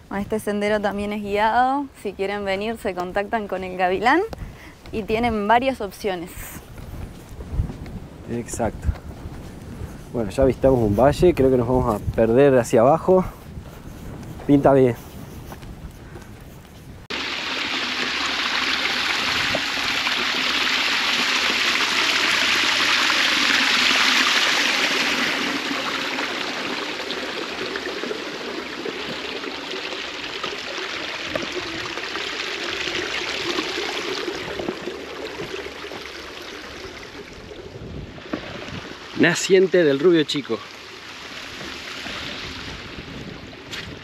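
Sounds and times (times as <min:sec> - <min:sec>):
stream running over rocks: 0:17.1 - 0:44.0.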